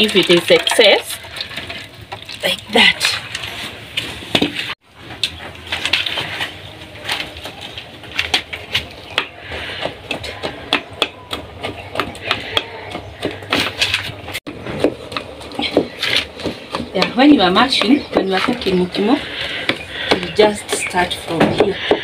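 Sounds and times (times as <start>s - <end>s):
stick mashing potatoes in a pot: 7.0s - 22.0s
stick knocking against metal pot: 9.1s - 14.0s.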